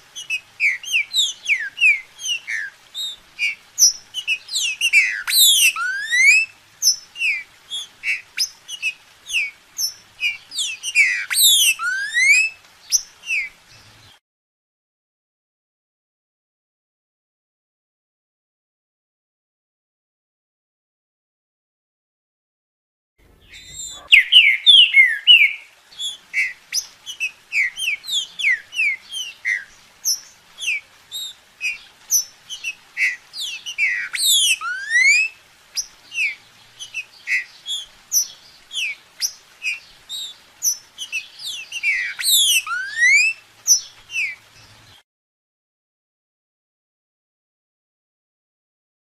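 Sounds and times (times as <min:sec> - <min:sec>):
bird whistling song: 0:00.0 - 0:14.1, 0:23.4 - 0:44.9.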